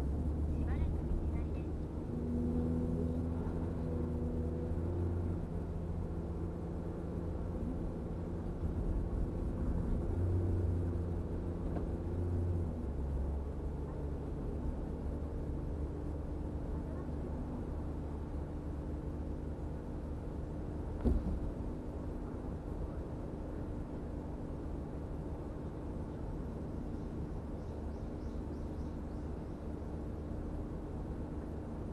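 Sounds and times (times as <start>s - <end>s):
car engine and road noise: 0.0s - 31.9s
short thump: 21.0s - 21.6s.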